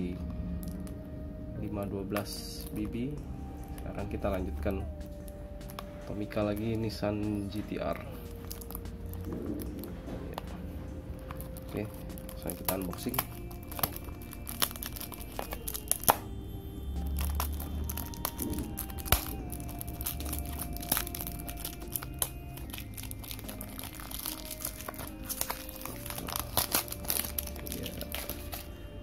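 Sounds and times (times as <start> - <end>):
soft background music: 0.0 - 29.0
plastic wrapper crinkling and tearing: 3.6 - 16.4, 17.0 - 29.0.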